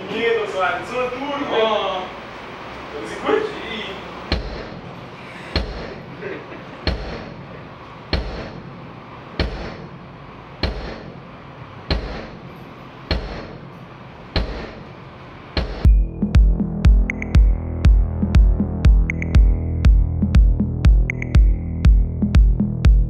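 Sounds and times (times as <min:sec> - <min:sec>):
bass drum hits: 0:15.6 - 0:23.0.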